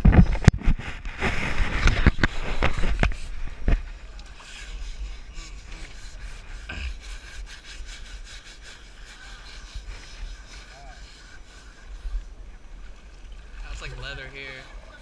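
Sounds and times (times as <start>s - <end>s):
brushes scrubbing wet skin: 4.3s - 12.3s.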